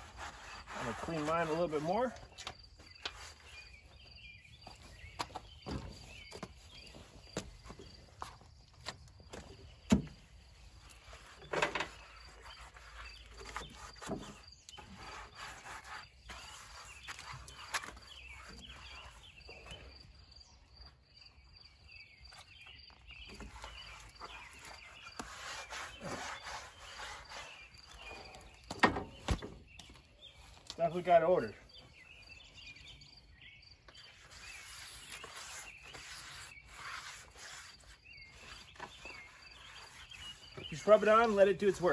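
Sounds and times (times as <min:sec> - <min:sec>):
rustling and scraping: 0:00.0 - 0:20.1, 0:22.2 - 0:31.0, 0:33.9 - 0:41.9
faint insect chirping: 0:06.6 - 0:25.4.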